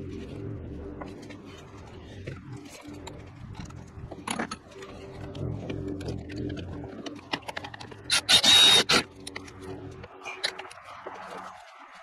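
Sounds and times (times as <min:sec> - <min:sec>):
cordless ratchet motor whine: 0:04.7 - 0:10.8.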